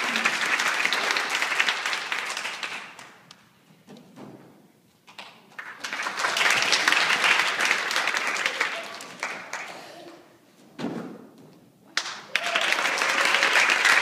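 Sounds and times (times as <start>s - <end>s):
children clapping: 0.0s - 3.2s, 5.2s - 10.2s, 12.0s - 14.0s.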